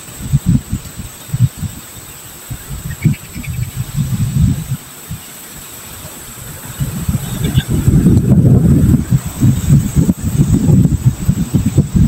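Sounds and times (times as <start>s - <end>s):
low rumbling microphone buffeting: 0.0s - 12.0s
high chirps: 2.5s - 3.8s.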